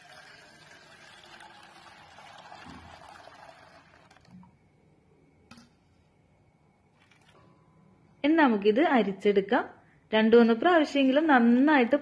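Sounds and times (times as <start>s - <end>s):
tea pouring into a steel bowl: 0.0s - 4.5s, 6.9s - 7.5s.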